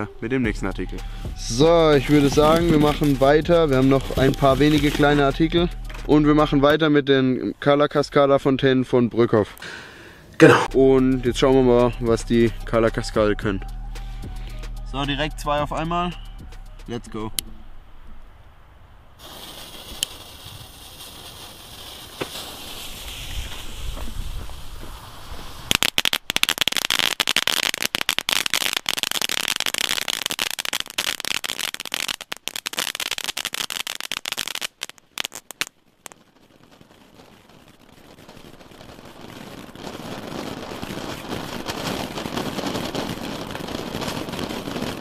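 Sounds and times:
firework fountain crackling: 0.0 - 17.2, 19.2 - 45.0
fountain spray hiss: 19.2 - 26.3.

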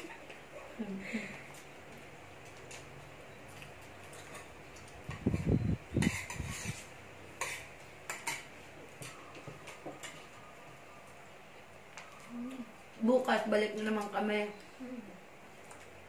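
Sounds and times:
cutlery clinking on plates: 6.0 - 6.8, 7.4 - 10.3.

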